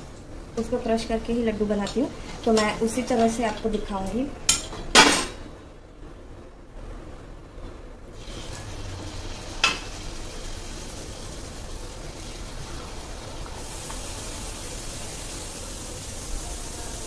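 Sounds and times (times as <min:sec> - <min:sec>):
dough sizzling in hot oil: 0:08.1 - 0:17.0.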